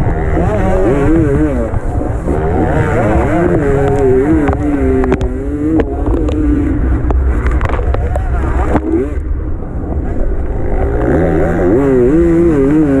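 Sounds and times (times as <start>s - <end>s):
dirt bike engine revving: 0.0s - 6.9s, 8.6s - 9.3s, 10.5s - 13.0s
low rumble: 0.0s - 13.0s
bike knocking on rough track: 0.2s - 9.1s.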